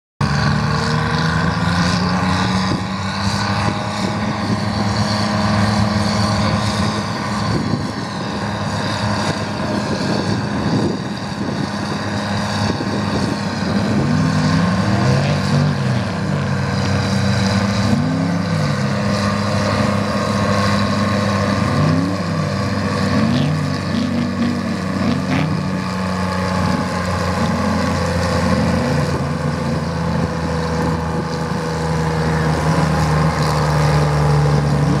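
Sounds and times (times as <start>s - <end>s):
diesel engine running under load: 0.2s - 35.0s.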